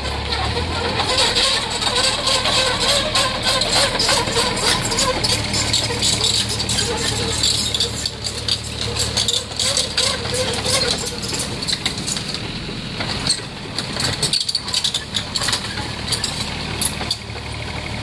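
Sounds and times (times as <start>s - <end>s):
bucket scraping gravel: 0.0s - 12.0s
metal clanks: 0.0s - 17.3s
diesel engine whining: 0.0s - 18.0s.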